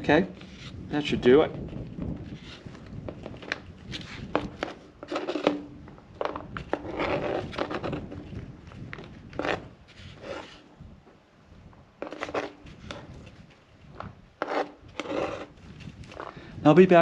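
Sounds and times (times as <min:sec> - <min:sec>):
knife scraping cutting board: 0:00.4 - 0:00.8, 0:03.9 - 0:05.7, 0:06.7 - 0:08.2, 0:09.3 - 0:10.6, 0:12.0 - 0:13.3, 0:14.4 - 0:15.6.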